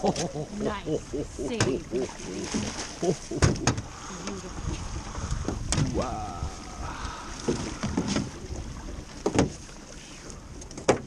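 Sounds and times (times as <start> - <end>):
river water: 0.0 - 11.0
wind: 0.0 - 11.0
net hauled into a boat: 2.0 - 6.1, 6.8 - 11.0.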